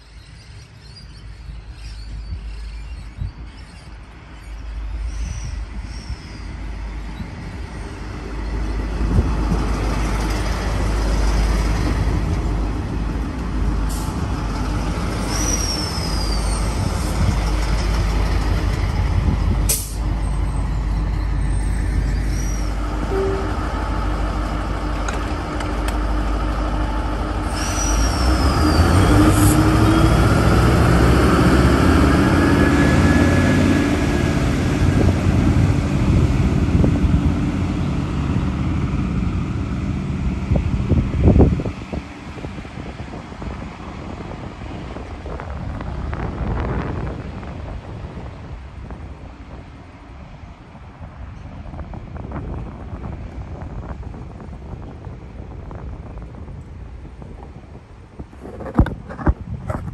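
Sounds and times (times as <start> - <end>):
diesel train rumbling: 0.0 - 59.9
high falling squeals: 15.2 - 18.1, 20.2 - 23.6, 27.4 - 30.0.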